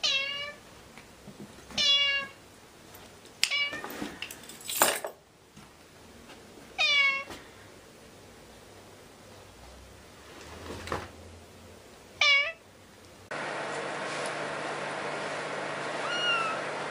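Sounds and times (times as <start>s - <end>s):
cat meowing: 0.0s - 0.6s, 1.8s - 2.4s, 6.8s - 7.3s, 12.2s - 12.6s, 16.0s - 16.7s.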